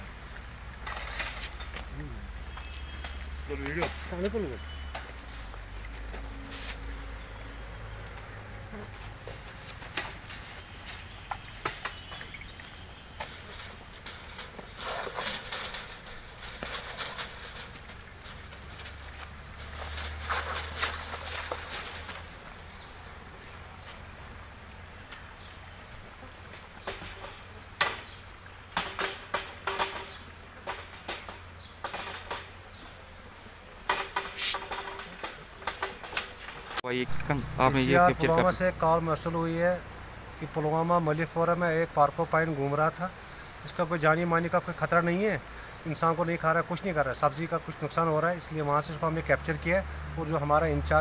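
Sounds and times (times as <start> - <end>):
wire cage trap clanking: 9.4 - 23.0, 26.8 - 32.8, 33.9 - 36.8
wire cage trap rattling: 13.2 - 22.4.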